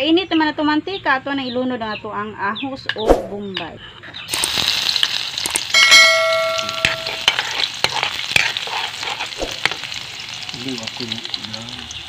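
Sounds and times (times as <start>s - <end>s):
garlic sizzling in oil: 4.3s - 12.0s
ladle clanging on wok: 5.6s - 7.5s
ladle scraping wok: 5.8s - 9.9s.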